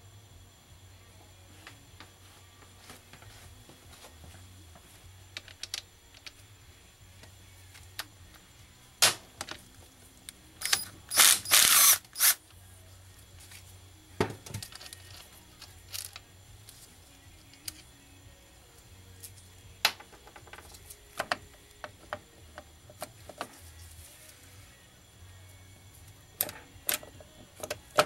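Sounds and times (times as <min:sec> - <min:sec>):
ratchet wrench clicking: 0:10.6 - 0:12.4, 0:14.6 - 0:16.2, 0:17.4 - 0:17.9
tools and metal parts clicking: 0:10.6 - 0:12.4, 0:14.5 - 0:16.2.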